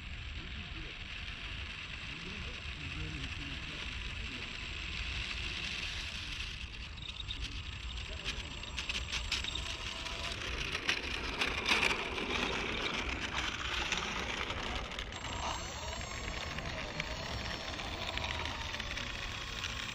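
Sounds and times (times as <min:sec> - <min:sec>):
faint motor whine: 0:00.0 - 0:19.9
model airplane rolling on concrete: 0:00.0 - 0:19.9
crackling and scraping: 0:01.2 - 0:19.9.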